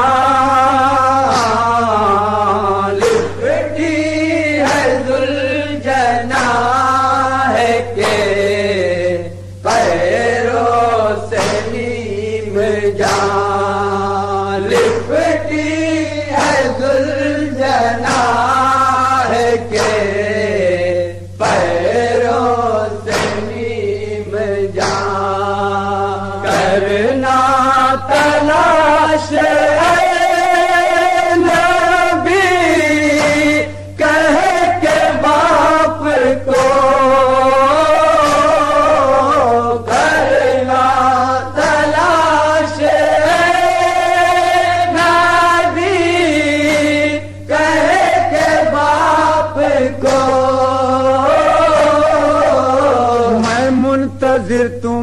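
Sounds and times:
sharp beats: 0:00.0 - 0:54.0
men chanting a lament: 0:00.0 - 0:55.0
steady low hum: 0:00.0 - 0:55.0.

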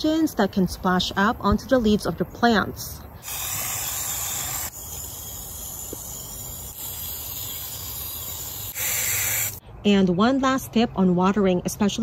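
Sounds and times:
hose nozzle spraying water: 0:03.2 - 0:09.6.

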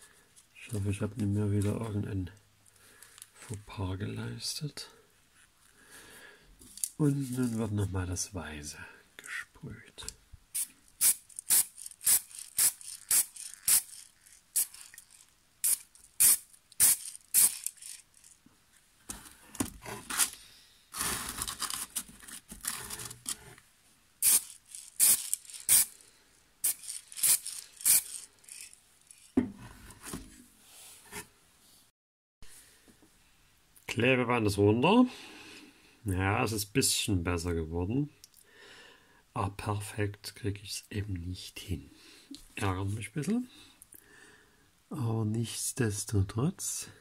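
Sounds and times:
spray can hissing: 0:10.5 - 0:15.0, 0:15.6 - 0:18.0, 0:24.2 - 0:26.0, 0:26.6 - 0:28.7.

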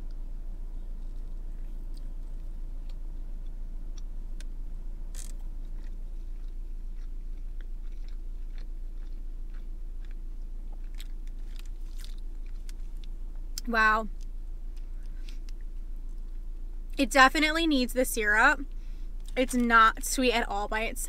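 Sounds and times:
low hum: 0:00.0 - 0:21.0
close-up chewing: 0:00.8 - 0:04.5, 0:05.1 - 0:13.2.

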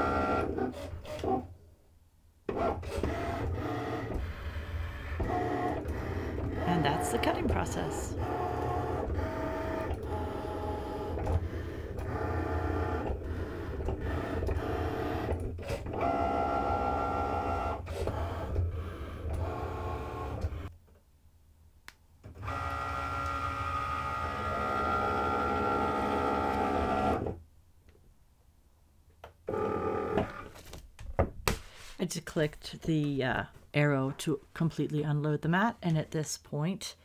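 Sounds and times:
cutting machine motors whirring: 0:00.0 - 0:01.5, 0:02.5 - 0:20.7, 0:22.3 - 0:27.4.

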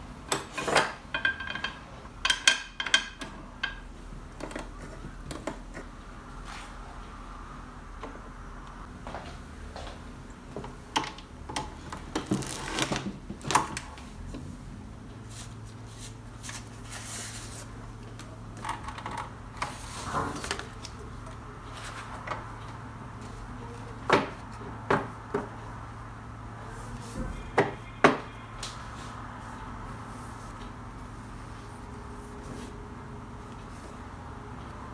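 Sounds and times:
paper stacks rustling and knocking: 0:11.8 - 0:13.8
steady low hum: 0:13.5 - 0:34.9.

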